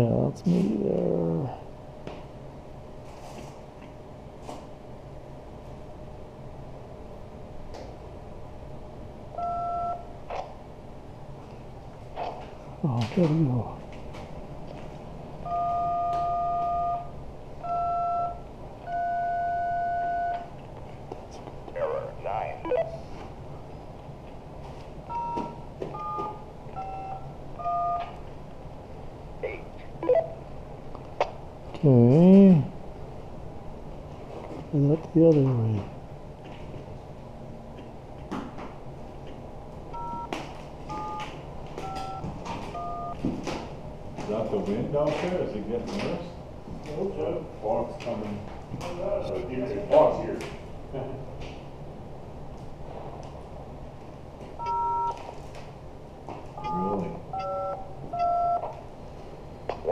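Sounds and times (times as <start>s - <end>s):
two-tone keypad beeps: 9.4s - 10.0s, 15.5s - 20.5s, 25.1s - 28.2s, 40.9s - 41.2s, 41.8s - 42.2s, 42.8s - 43.2s, 54.6s - 55.2s, 56.6s - 58.7s.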